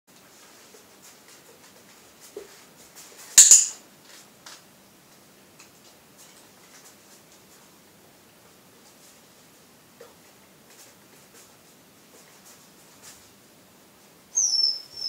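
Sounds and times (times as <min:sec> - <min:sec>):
sharp double click: 0:03.4 - 0:03.8.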